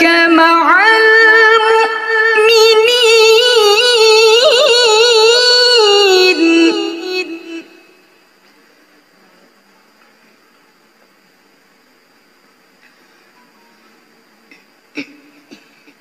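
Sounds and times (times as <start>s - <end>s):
woman reciting melodically: 0.0s - 8.1s.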